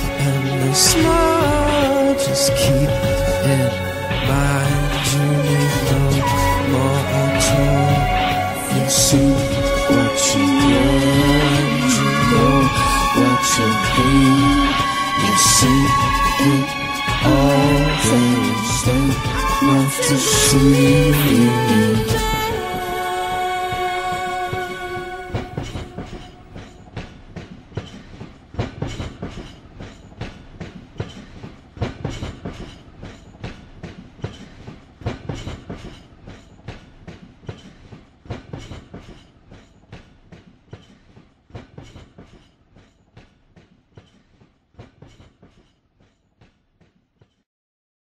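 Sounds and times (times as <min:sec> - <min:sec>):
heavy train clunk: 0:00.0 - 0:46.5
train wheels clattering over rail joints: 0:23.6 - 0:47.4.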